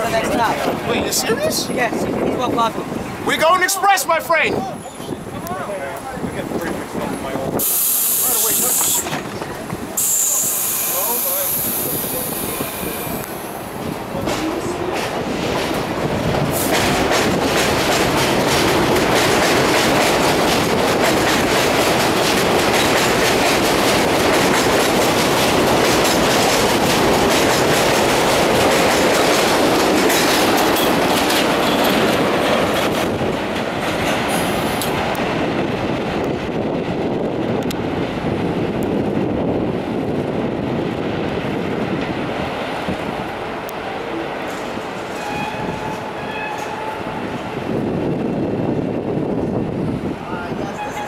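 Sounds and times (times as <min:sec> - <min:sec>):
train wheels clattering over rail joints: 0:13.8 - 0:38.2.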